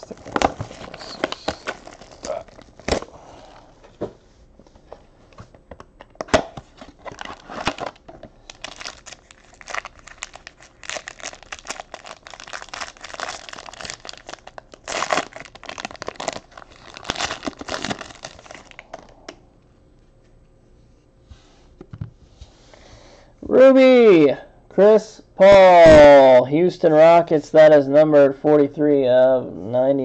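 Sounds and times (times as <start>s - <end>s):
foil wrapper crinkling: 0.0s - 3.0s, 7.0s - 19.2s
foil wrapper snapping: 0.2s - 3.1s, 7.1s - 19.1s.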